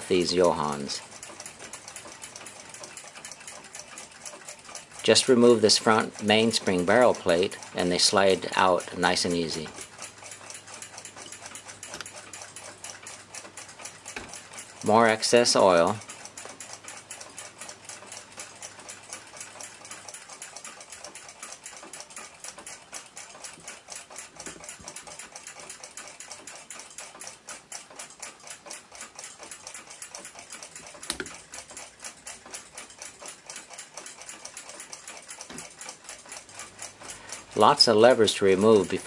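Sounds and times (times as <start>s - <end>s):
rapid mechanical ticking: 0.0s - 39.0s
sharp metal click: 30.9s - 31.4s.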